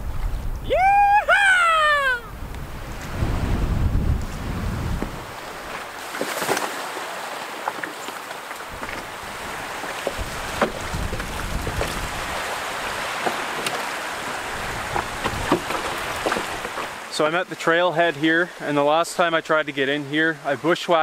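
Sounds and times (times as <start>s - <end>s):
wind buffeting microphone: 0.0s - 6.0s, 8.6s - 17.1s
small waves splashing: 0.0s - 21.0s
wind: 0.0s - 21.0s.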